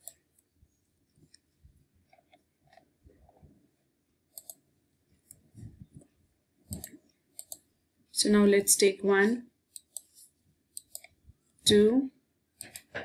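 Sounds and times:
computer mouse clicks: 0.0 - 0.5, 4.3 - 4.6, 6.7 - 7.7, 9.7 - 11.2, 12.6 - 12.9
soft low rustle: 5.4 - 7.0.

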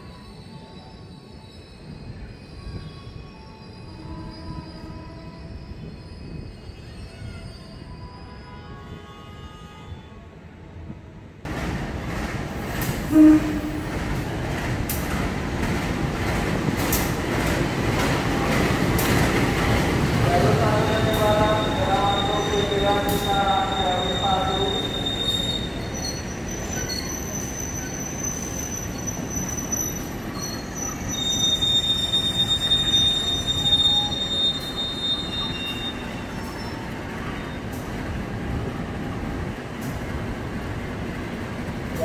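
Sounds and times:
train wheels squealing on rails: 0.0 - 10.3, 18.1 - 42.0
train rolling rumble: 10.8 - 42.0.

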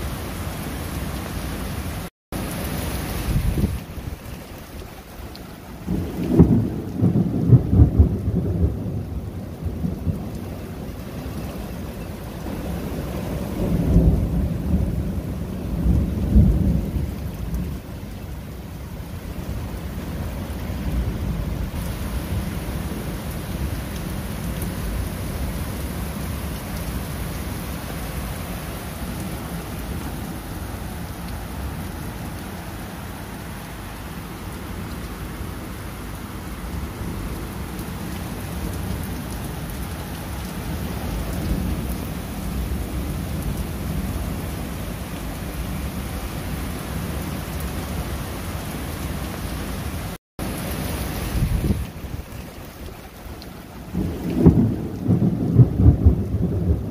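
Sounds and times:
rain on pavement and grass: 0.0 - 56.9
thunder rumble: 5.8 - 17.9, 51.2 - 56.9.

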